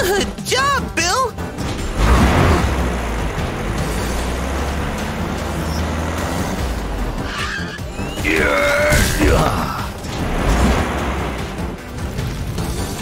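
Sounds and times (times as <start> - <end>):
tire screech: 1.8 - 11.6.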